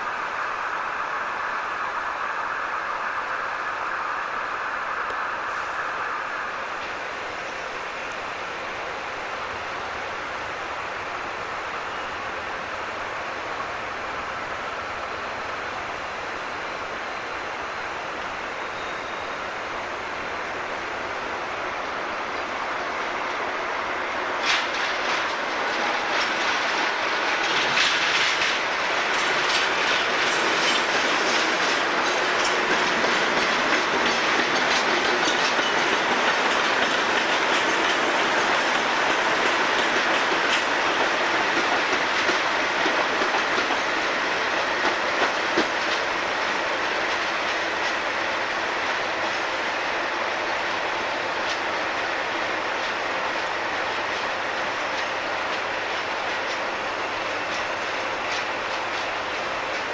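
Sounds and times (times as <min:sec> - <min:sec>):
diesel locomotive engines passing: 0:00.0 - 0:59.9
wheels clicking over rail joints: 0:24.4 - 0:46.2.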